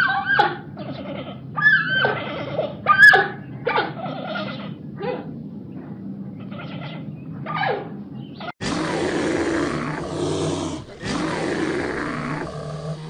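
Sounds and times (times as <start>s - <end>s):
falling animal call: 8.6s - 13.0s
large animal roaring: 8.6s - 13.0s.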